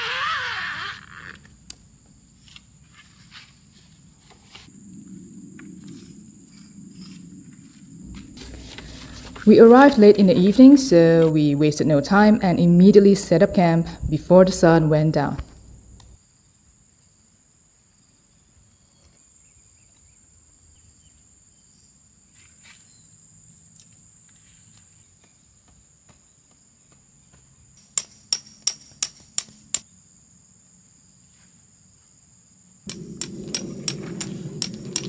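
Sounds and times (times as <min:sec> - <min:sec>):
insects chirring: 0:00.0 - 0:35.0
tent pegs being hammered: 0:27.8 - 0:29.8.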